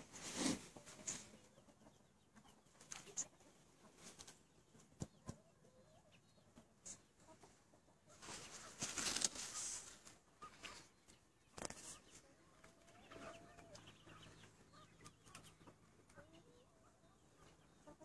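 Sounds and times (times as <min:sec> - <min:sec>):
rustling noise: 0:00.0 - 0:01.4, 0:08.1 - 0:10.9
chickens clucking: 0:00.0 - 0:18.0.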